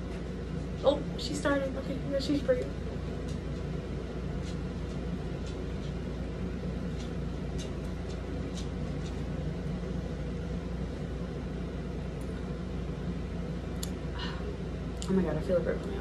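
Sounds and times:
low room hum: 0.0 - 16.0.

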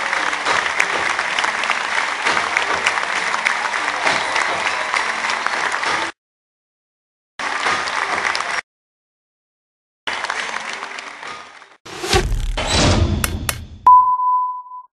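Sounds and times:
audience applauding: 0.0 - 6.2, 7.4 - 8.6, 10.1 - 11.8.

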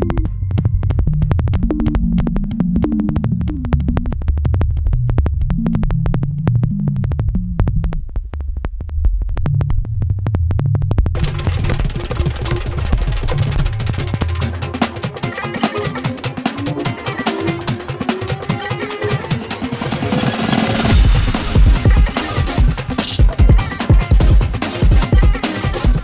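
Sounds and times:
clicking beat: 0.0 - 26.0
drums: 0.0 - 26.0
synthesizer bass line: 0.0 - 26.0.

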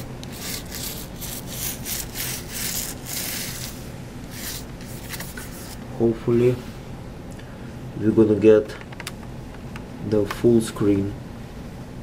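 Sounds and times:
brush scrubbing circuit board: 0.0 - 5.8.

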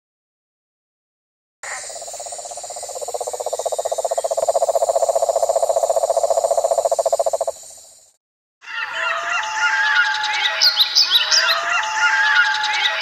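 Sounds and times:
high insect drone: 1.6 - 8.2
rapidly pulsing animal trill: 1.8 - 7.9.

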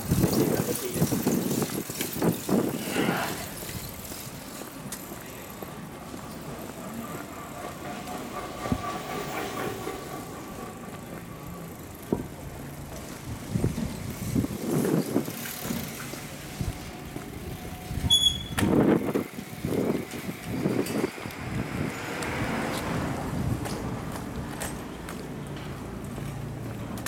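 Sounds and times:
bicycles passing: 0.0 - 27.0
short high squeak: 18.0 - 18.7
car approaching: 18.7 - 27.0.

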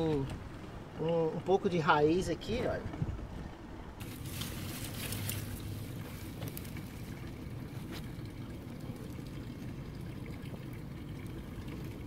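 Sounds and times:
clicks and rustles of vines: 4.0 - 8.2.

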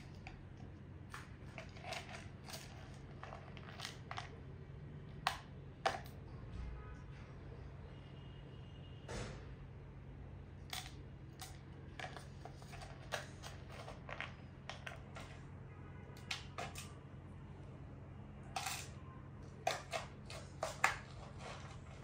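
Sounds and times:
metal spoon clinking: 18.6 - 19.0
seed pods rattling into plastic jar: 18.6 - 19.0.

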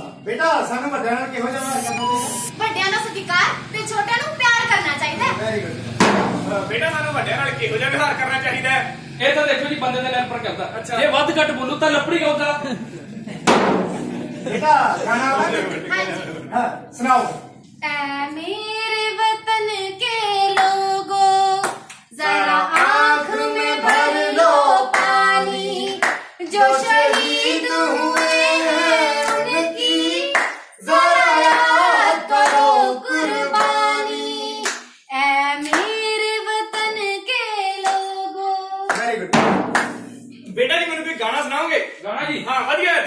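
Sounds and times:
sharp percussive beats: 1.6 - 2.5, 13.5 - 14.6, 39.3 - 41.1
woman singing: 17.8 - 23.9, 35.1 - 38.9.

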